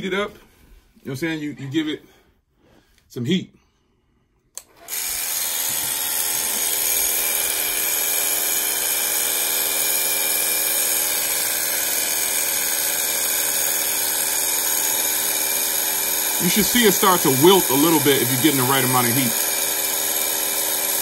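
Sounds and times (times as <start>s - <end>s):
blow dryer running: 4.7s - 21.0s.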